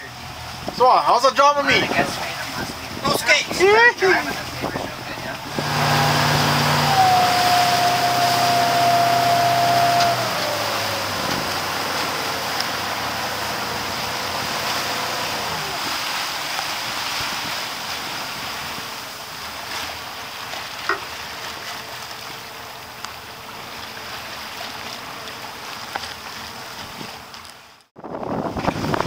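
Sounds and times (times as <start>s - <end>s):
choppy seawater around boat: 0.0s - 29.0s
faint motor hum: 1.5s - 16.0s, 17.7s - 27.9s
wind rushing: 28.0s - 29.0s.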